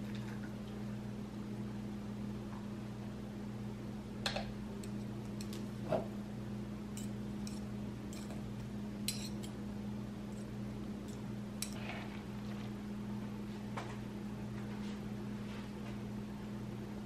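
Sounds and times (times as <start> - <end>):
steady low hum: 0.0 - 17.0
metal forks clicking and scraping: 7.0 - 8.4, 9.1 - 9.5, 11.1 - 11.8.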